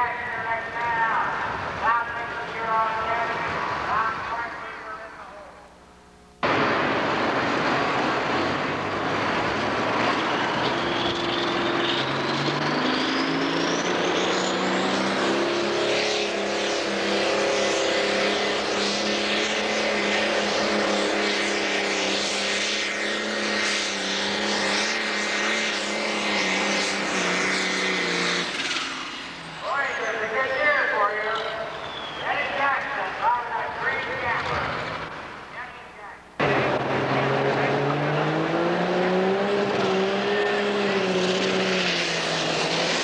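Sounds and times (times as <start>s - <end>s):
turbo whine: 0.0s - 43.0s
diesel tractor engine at high revs: 6.4s - 30.4s, 36.4s - 43.0s.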